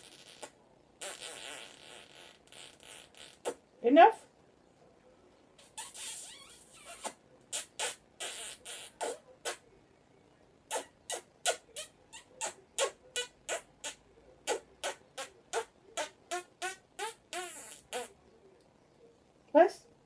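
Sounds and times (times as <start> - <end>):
kissing smacks: 0.0 - 3.6, 5.6 - 9.6, 10.7 - 18.1.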